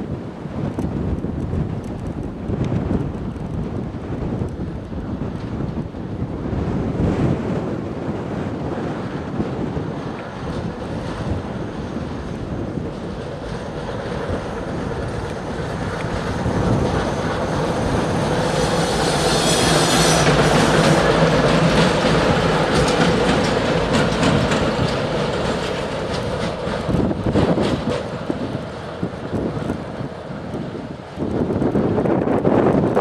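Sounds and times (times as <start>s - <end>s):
diesel locomotives passing: 0.0s - 33.0s
wheels knocking over rail joints: 19.7s - 28.6s.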